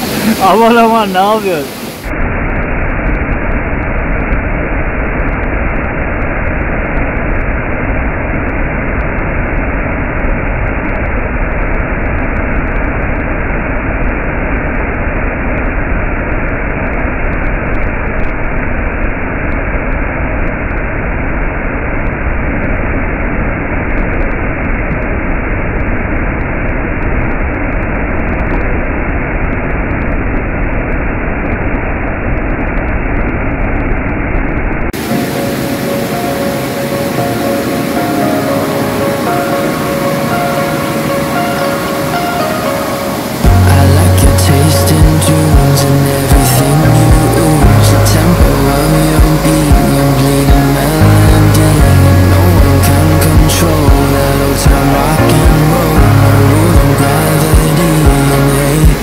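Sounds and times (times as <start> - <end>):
waterfall rushing: 0.0 - 19.0, 35.0 - 59.0.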